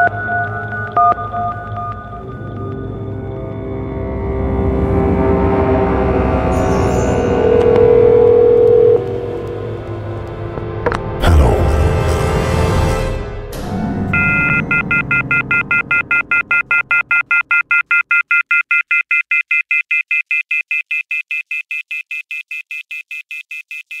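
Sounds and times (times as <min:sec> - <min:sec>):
low score sound: 0:04.5 - 0:12.6, 0:13.6 - 0:17.4
telephone line tone beeping: 0:07.3 - 0:09.4, 0:14.2 - 0:24.0.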